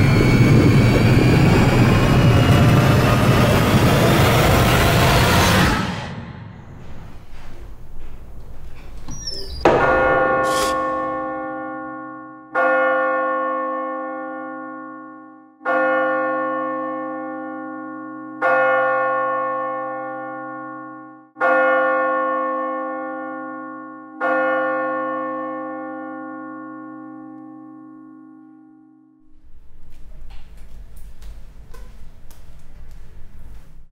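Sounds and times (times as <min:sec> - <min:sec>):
deep bell tolling: 0:09.2 - 0:29.8.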